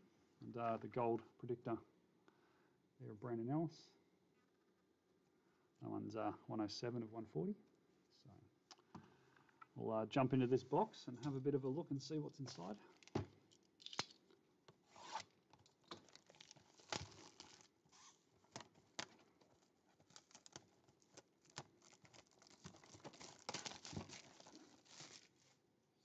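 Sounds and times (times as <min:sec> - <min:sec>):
plastic wrap tearing and crinkling: 0:12.9 - 0:14.2, 0:14.9 - 0:25.6
small clicks and rustles: 0:15.5 - 0:25.6.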